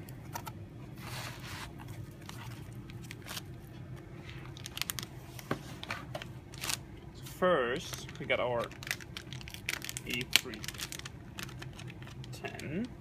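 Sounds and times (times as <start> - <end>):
plastic bag crinkling: 4.3 - 5.8, 7.8 - 12.9.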